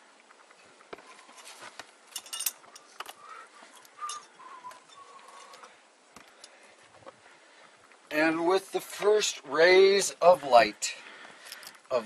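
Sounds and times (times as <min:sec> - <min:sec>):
branches rustling: 0:00.0 - 0:12.0
climbing gear clinking: 0:00.5 - 0:06.6, 0:11.3 - 0:11.9
faint wavering tone: 0:02.2 - 0:05.7.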